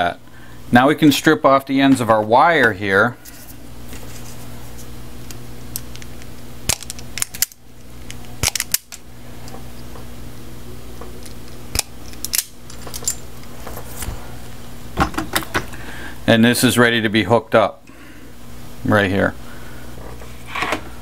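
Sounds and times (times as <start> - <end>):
low electrical hum: 0.0 - 21.0
wire strippers snapping shut: 6.7 - 9.0, 11.2 - 13.2.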